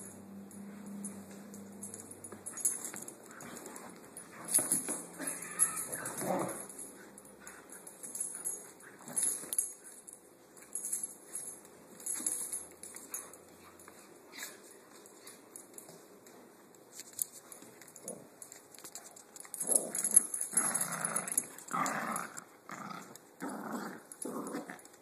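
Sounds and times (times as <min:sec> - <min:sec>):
collar tag jingling: 0:00.0 - 0:16.0, 0:17.3 - 0:22.3
dogs tugging and scuffling: 0:00.5 - 0:25.0
dog whining: 0:05.2 - 0:06.2.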